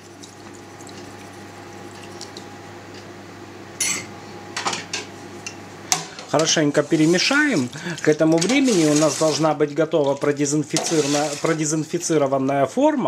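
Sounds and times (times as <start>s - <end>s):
steady low hum: 0.0s - 8.4s
metal spoon clinking on pan: 3.8s - 4.1s.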